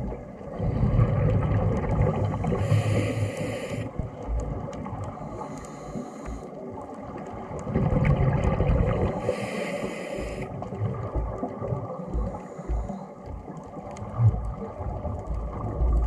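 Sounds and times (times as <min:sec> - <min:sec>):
bubbling exhaled air: 0:00.0 - 0:06.3, 0:07.6 - 0:13.0
regulator hissing inhalations: 0:02.4 - 0:03.9, 0:05.3 - 0:06.6, 0:09.1 - 0:10.5.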